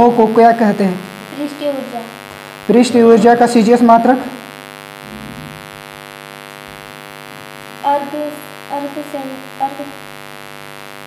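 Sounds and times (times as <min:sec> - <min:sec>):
person speaking: 0:00.0 - 0:04.4, 0:05.0 - 0:05.6
electrical mains hum: 0:00.0 - 0:11.0.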